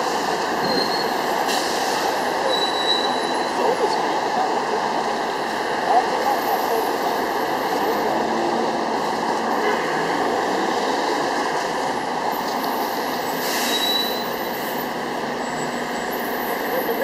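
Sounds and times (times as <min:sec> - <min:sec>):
city traffic noise: 0:00.0 - 0:17.0
brief high hiss: 0:13.4 - 0:14.2.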